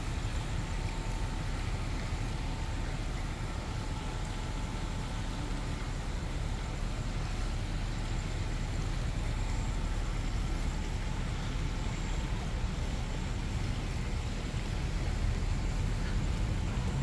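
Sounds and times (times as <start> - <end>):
city traffic rumble: 0.0 - 17.0.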